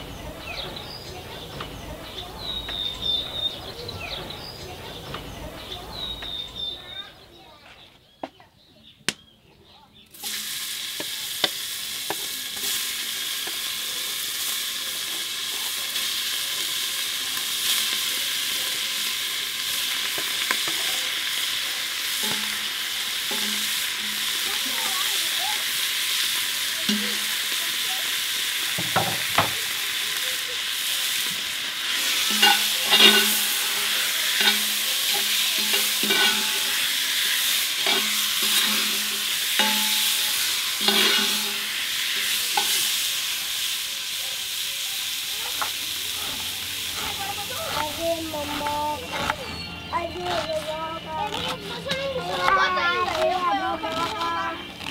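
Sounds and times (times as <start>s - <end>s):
oil popping: 10.1s - 43.8s
meat sizzling in hot oil: 10.1s - 48.3s.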